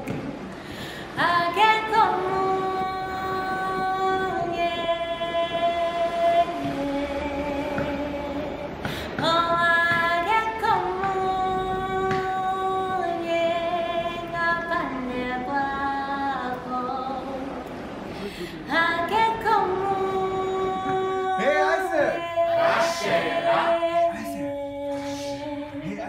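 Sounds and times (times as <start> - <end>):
person singing long notes: 18.2 - 26.0.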